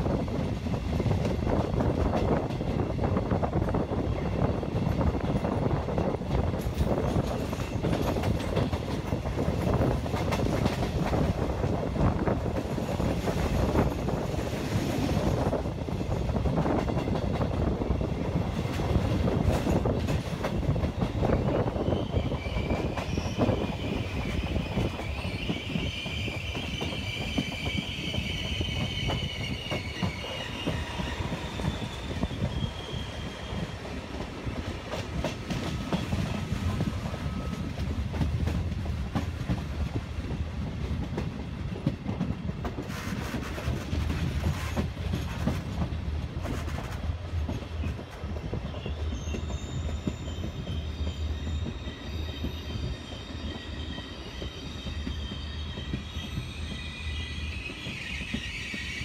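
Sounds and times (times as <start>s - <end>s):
train wheels rumbling on rail: 0.0s - 59.0s
high-pitched wheel squeal: 21.5s - 33.8s, 48.8s - 59.0s.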